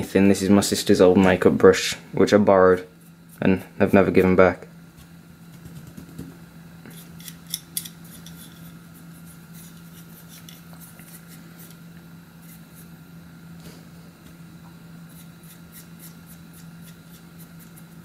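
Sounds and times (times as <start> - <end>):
brush bristles scratching plastic: 15.1 - 18.0.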